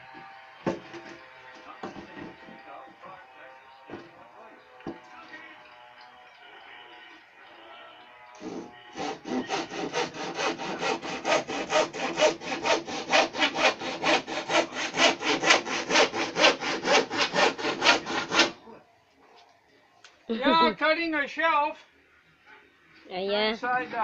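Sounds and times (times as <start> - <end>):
knock: 0.6 - 1.2
hand saw cutting wood: 8.4 - 18.6.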